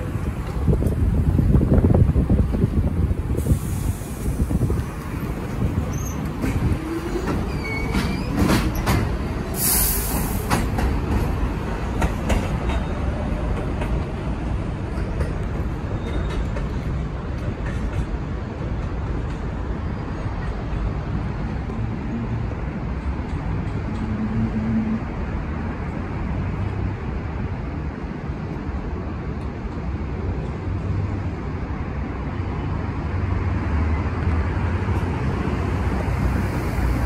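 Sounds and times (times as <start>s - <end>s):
train rumble: 0.0s - 37.0s
air hiss: 3.3s - 5.2s, 9.5s - 10.7s
wheels clanking over rail joints: 4.7s - 21.0s.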